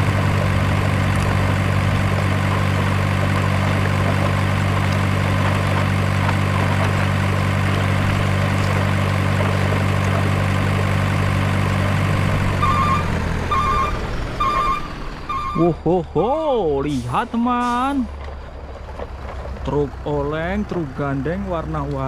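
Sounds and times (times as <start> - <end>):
truck engine idling: 0.0 - 22.0
reversing beeper: 12.5 - 16.0.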